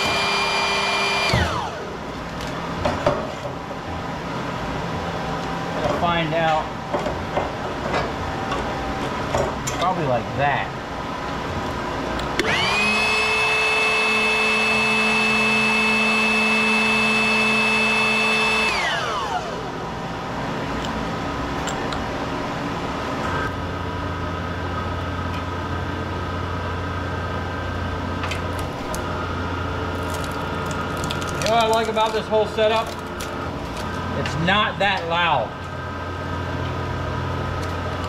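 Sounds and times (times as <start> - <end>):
power tool motor whining: 0.0 - 1.9, 12.4 - 19.7
machine hum: 0.0 - 38.0.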